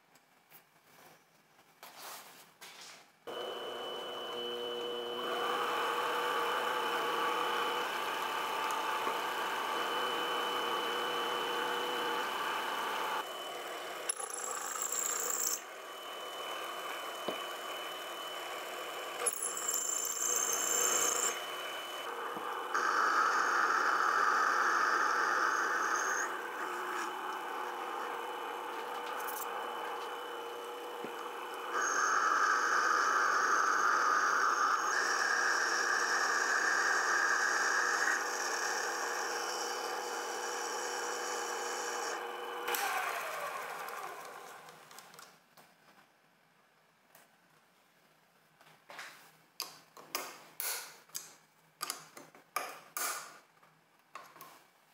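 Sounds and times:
metal cutting noise: 3.3 - 44.6
lathe whining: 3.3 - 44.9.

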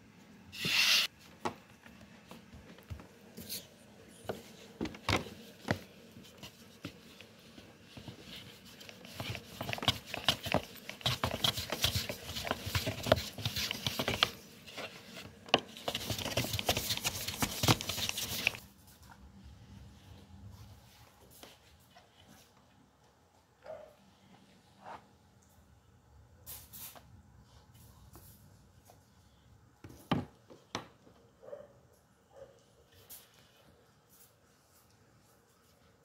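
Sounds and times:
rolling pin rolling dough: 4.3 - 18.6.

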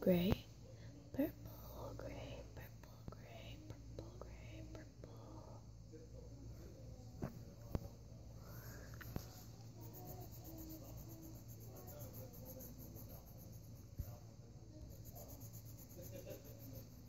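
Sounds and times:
pencil scratching on paper: 9.2 - 14.1, 14.8 - 17.0.

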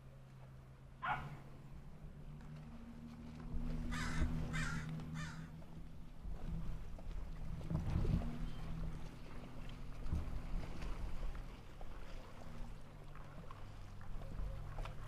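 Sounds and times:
low engine hum: 0.0 - 15.0
crow cawing: 3.9 - 5.5.

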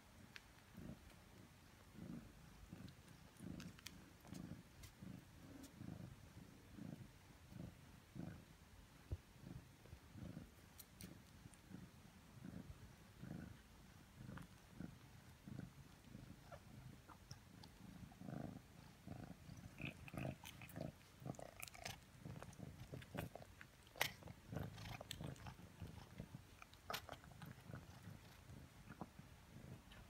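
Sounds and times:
cat purring: 0.0 - 30.0
kittens nursing wet clicks: 0.2 - 1.3, 2.8 - 5.0, 14.1 - 18.2, 19.3 - 29.2.

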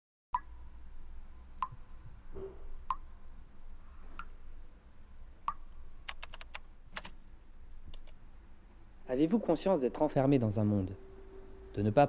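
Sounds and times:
low hum: 7.3 - 12.0.

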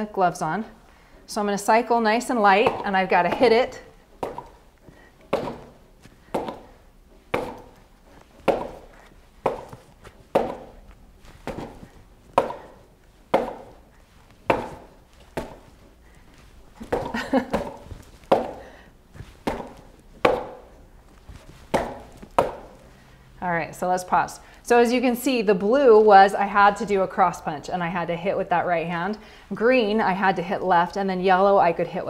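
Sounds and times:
gloved punches on pads: 4.2 - 4.6, 5.3 - 7.8, 8.4 - 22.8.

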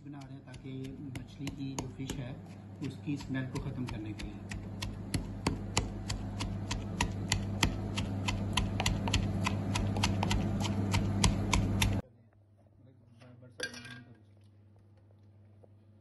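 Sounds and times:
pestle pounding in wooden mortar: 0.0 - 12.0.

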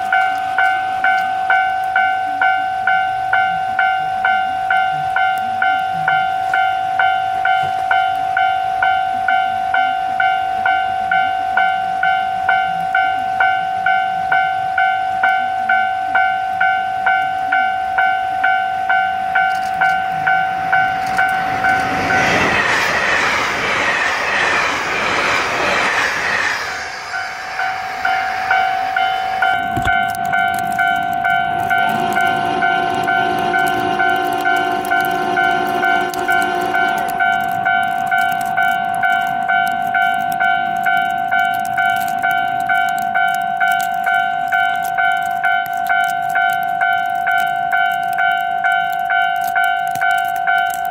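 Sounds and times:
level crossing bell ringing: 0.0 - 22.0
train passing at speed: 0.0 - 50.9.

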